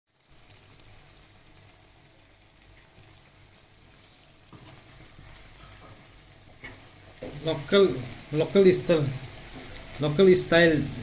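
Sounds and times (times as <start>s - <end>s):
oil sizzling: 0.1s - 11.0s
spatula stirring in wok: 3.7s - 10.1s.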